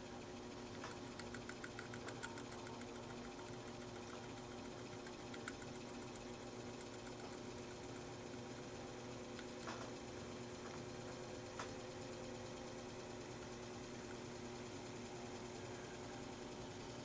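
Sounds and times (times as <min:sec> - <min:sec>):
exhaust fan motor humming: 0:00.0 - 0:17.0
quick light ticks: 0:00.7 - 0:08.7.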